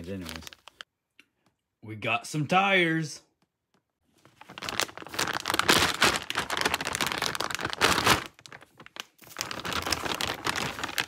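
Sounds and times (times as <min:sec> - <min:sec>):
plastic packaging crinkling: 0:00.0 - 0:00.9, 0:04.2 - 0:11.0.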